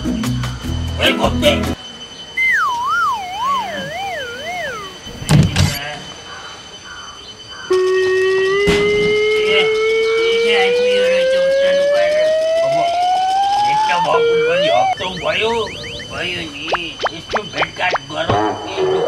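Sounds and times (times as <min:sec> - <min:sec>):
long tone rising in pitch: 0:02.4 - 0:05.4, 0:07.9 - 0:17.4
wobbling whistle sliding down: 0:02.4 - 0:05.8.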